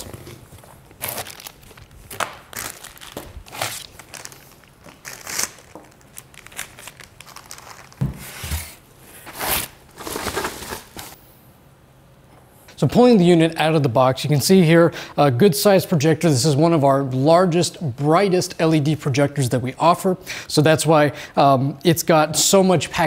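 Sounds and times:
plastic bags crinkling: 0.0s - 8.1s, 9.2s - 11.2s.

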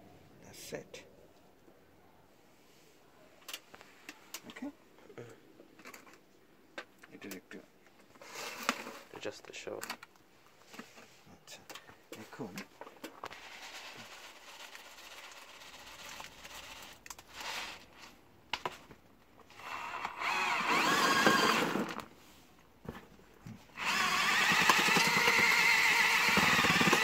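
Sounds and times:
granules rattling in plastic bottle: 13.0s - 17.9s, 23.8s - 27.0s
electric drill mixing soil: 19.5s - 22.1s, 23.7s - 27.0s.

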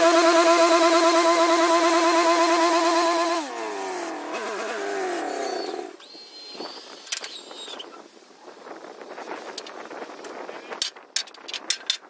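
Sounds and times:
sawmill engine running: 0.0s - 5.8s.

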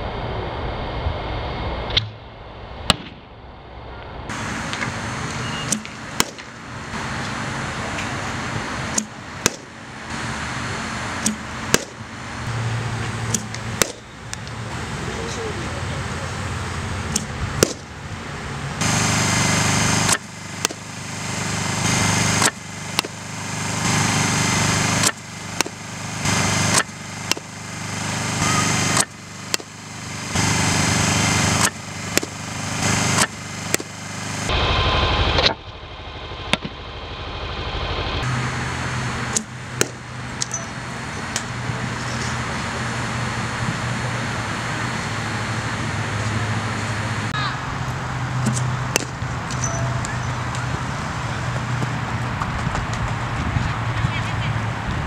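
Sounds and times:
outdoor noise: 0.0s - 55.0s
bat striking ball cracks: 2.9s - 3.2s, 4.3s - 12.1s, 13.1s - 14.7s, 17.0s - 18.0s, 18.8s - 34.0s, 38.4s - 45.8s, 48.4s - 53.0s
steady engine-like hum: 3.5s - 55.0s.

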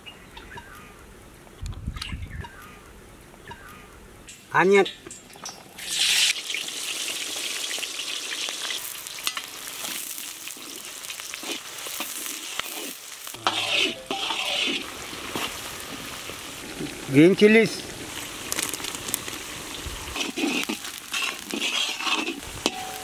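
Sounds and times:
onions sizzling in oil: 5.4s - 23.0s
metal spatula scraping wok: 9.2s - 15.6s, 20.1s - 23.0s.

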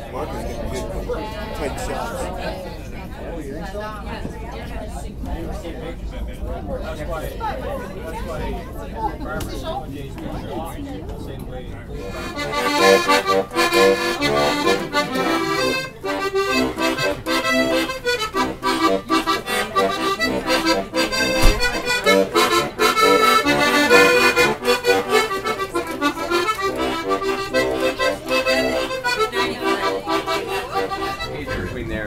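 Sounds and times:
button accordion tune: 12.0s - 31.8s.

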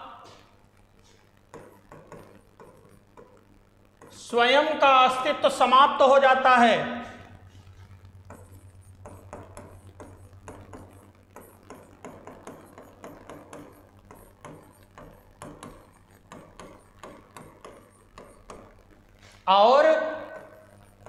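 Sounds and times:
steady low hum: 0.0s - 21.0s
stylus tapping and scraping on screen: 0.3s - 4.2s, 7.2s - 19.5s, 20.2s - 21.0s.

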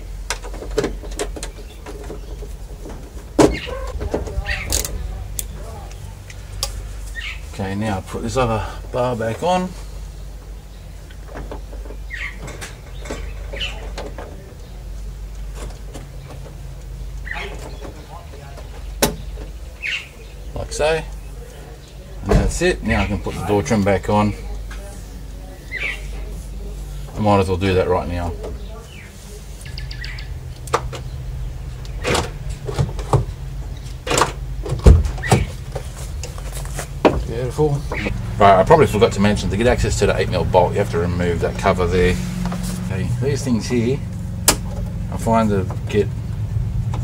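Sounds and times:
car door opening thump: 34.1s - 35.6s
car door lock clicks and clunks: 44.4s - 44.9s.

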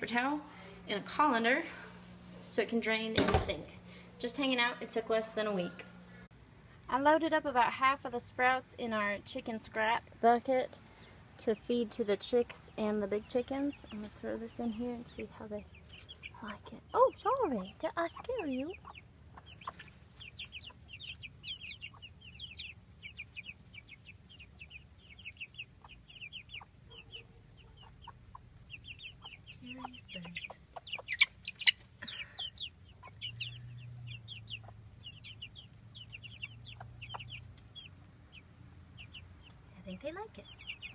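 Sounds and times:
chicks peeping: 11.4s - 40.9s
hen clucking: 13.2s - 40.9s.

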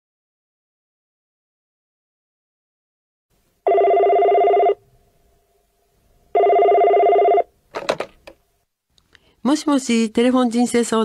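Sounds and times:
telephone ringing with warbling trill: 3.7s - 4.8s, 6.3s - 7.5s.

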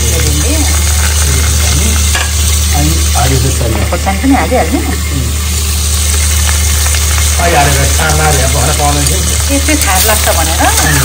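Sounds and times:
vegetables sizzling in a wok: 0.0s - 11.0s
metal spoon scraping a pan: 0.4s - 2.6s.

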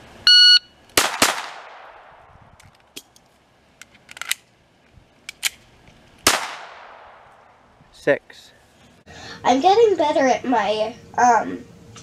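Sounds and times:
gunshot echo: 1.0s - 2.3s, 6.2s - 7.4s
pistol clicking and clacking: 3.8s - 4.5s, 5.2s - 6.4s.

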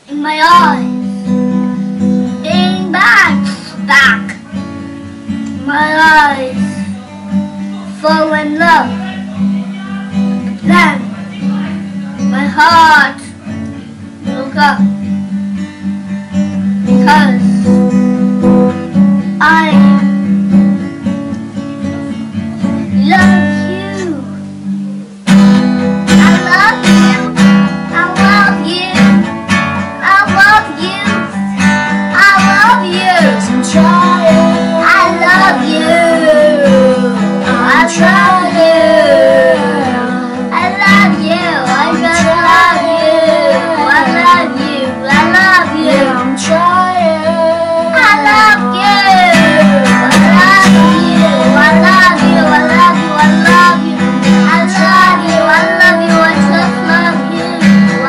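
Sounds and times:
child singing: 0.0s - 1.4s, 2.4s - 4.6s, 5.5s - 7.0s, 7.9s - 9.2s, 9.9s - 13.4s, 14.3s - 14.9s, 16.8s - 17.7s, 19.4s - 20.2s, 22.8s - 24.4s, 26.1s - 29.3s, 30.0s - 58.0s
strummed acoustic guitar: 0.0s - 58.0s.

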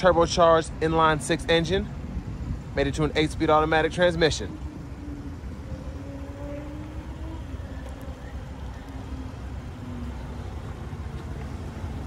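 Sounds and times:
faint engine hum: 0.0s - 12.0s
road traffic rumble: 0.0s - 12.0s.

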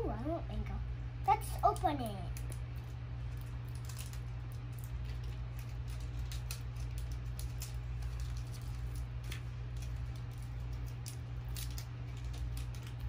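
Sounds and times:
steady low hum: 0.0s - 13.0s
wrappers crinkling: 1.7s - 13.0s.

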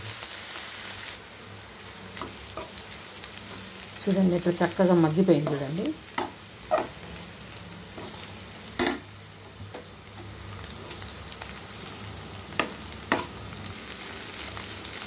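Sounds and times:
vegetables sizzling in a pan: 0.0s - 15.0s
spoon clacking against pan: 5.4s - 7.0s, 8.8s - 9.1s, 12.5s - 13.3s.

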